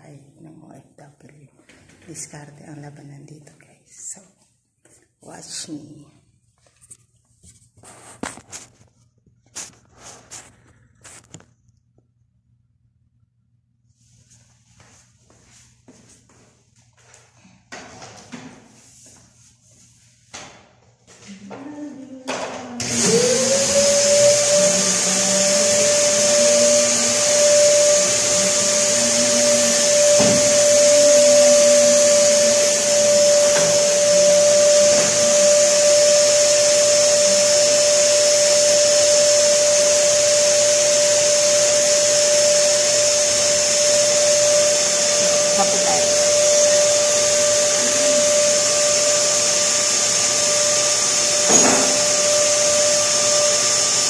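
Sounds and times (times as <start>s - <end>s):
vacuum cleaner motor whining: 21.5s - 54.0s.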